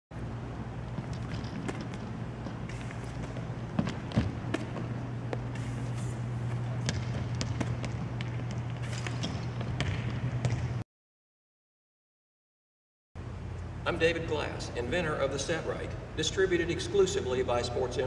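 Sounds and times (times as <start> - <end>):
steady low hum: 0.1 - 10.8, 13.2 - 18.0
balls bouncing on wooden floor: 0.9 - 5.5, 6.8 - 10.8.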